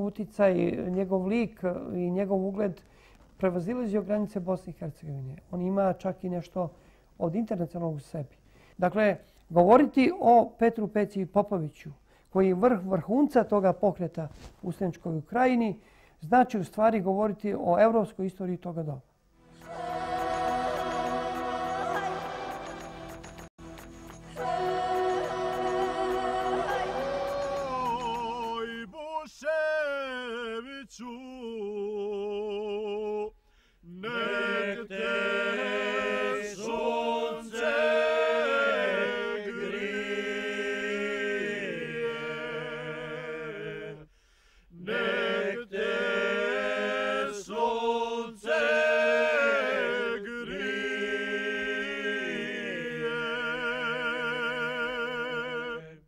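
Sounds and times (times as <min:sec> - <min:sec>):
person singing chant-like: 0:19.6 - 0:23.2, 0:24.3 - 0:30.3.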